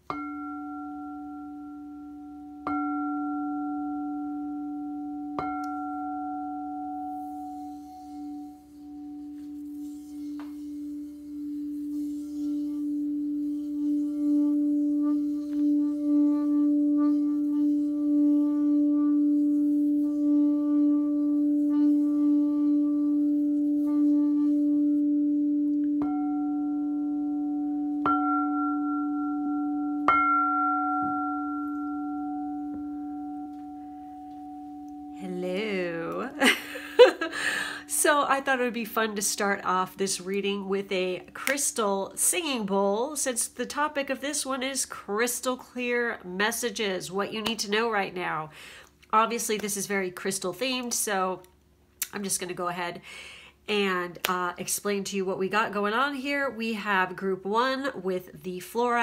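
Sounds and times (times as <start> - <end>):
singing bowl ringing: 0.0 - 14.9, 25.0 - 37.1.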